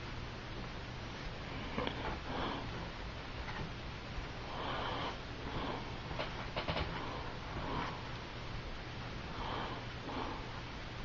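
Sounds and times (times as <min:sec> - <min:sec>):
person breathing through nose: 0:04.4 - 0:06.0, 0:09.3 - 0:10.6.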